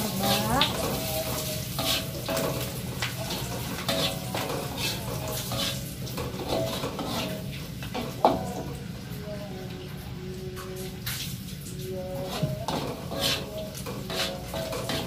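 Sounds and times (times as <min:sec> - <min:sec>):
metal spatula scraping wok: 0:00.0 - 0:08.2, 0:12.2 - 0:15.0
food sizzling: 0:00.0 - 0:15.0.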